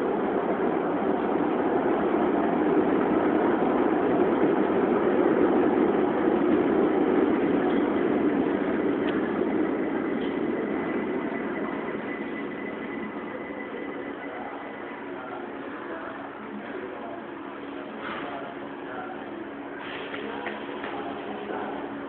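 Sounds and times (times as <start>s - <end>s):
subway train standing at platform: 0.0s - 22.0s.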